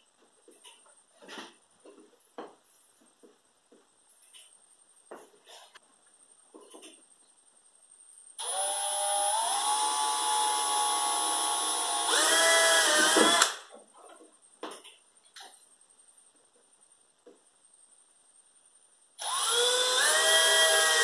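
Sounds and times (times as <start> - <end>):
cordless drill driving screw: 8.4 - 13.6, 19.2 - 21.0.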